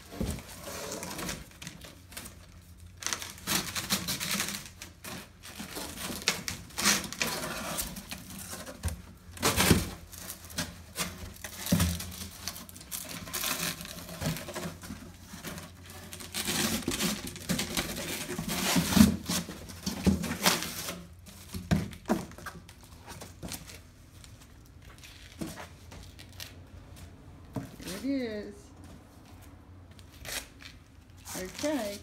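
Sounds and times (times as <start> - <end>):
cardboard thumping on concrete floor: 0.0 - 2.6, 3.4 - 26.4
cardboard scraping and tearing: 0.0 - 23.8, 30.1 - 32.0.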